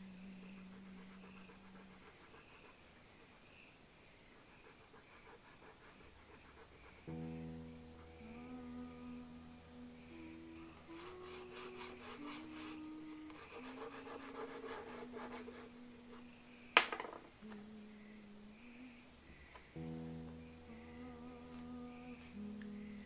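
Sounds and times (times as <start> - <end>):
slow music with held notes: 0.0 - 2.2, 7.1 - 23.0
pastel rubbing on paper: 0.5 - 2.9, 4.4 - 7.1, 10.8 - 15.7.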